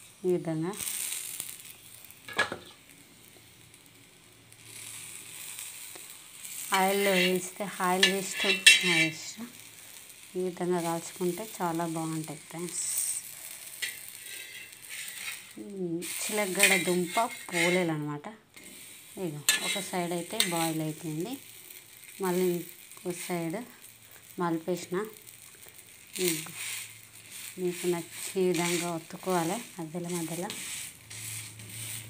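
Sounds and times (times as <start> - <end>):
flatbread sizzling on iron pan: 0.0 - 32.0.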